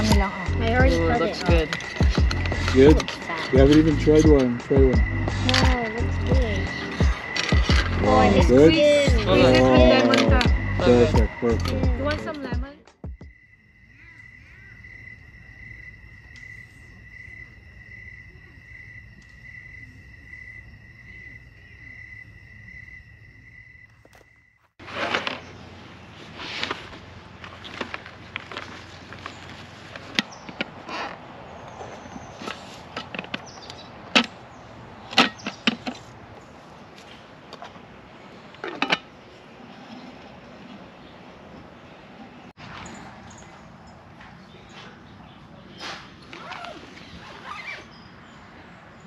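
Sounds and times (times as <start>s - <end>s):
low rumble: 0.0s - 12.3s
crickets chirping: 0.0s - 49.0s.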